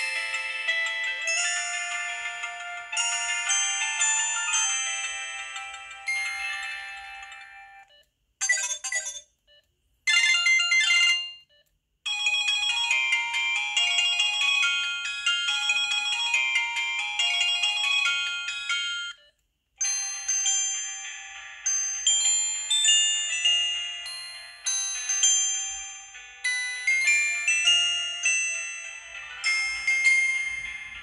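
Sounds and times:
mobile phone ringtones: 0.1s - 19.3s.

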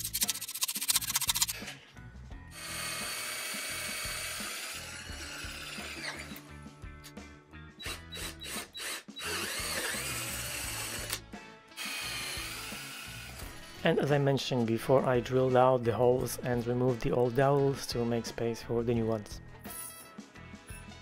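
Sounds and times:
power drill boring into wood: 2.6s - 6.4s, 7.8s - 11.2s, 11.8s - 13.8s.

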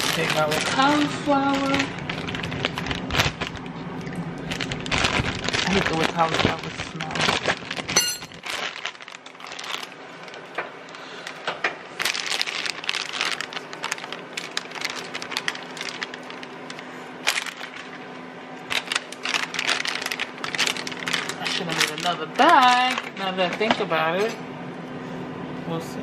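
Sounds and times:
florets crunching in cheese sauce: 0.0s - 18.0s.

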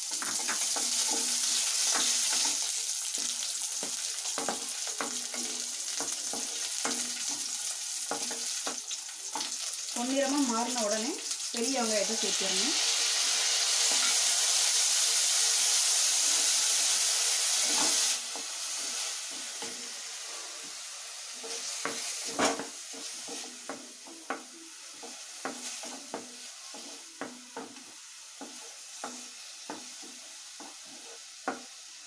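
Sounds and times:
paste sizzling in hot oil: 0.0s - 32.0s
wooden spatula knocking pan: 0.1s - 9.6s, 21.4s - 30.8s, 31.4s - 31.7s.

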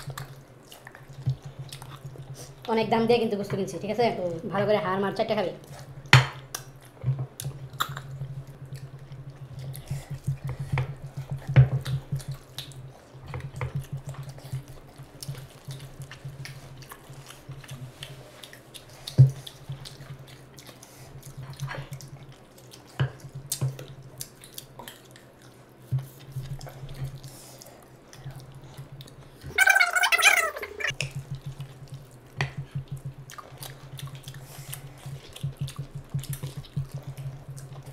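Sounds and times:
chewing and lip-smacking: 0.0s - 2.7s, 5.6s - 37.9s
steady low hum: 0.0s - 37.9s.

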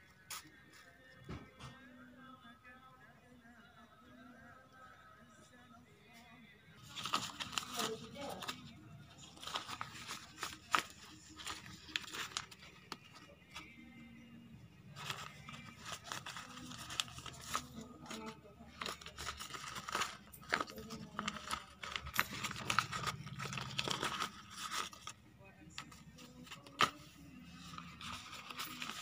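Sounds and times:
paper crinkling and tearing: 6.8s - 13.6s, 15.0s - 25.2s, 25.8s - 29.0s.

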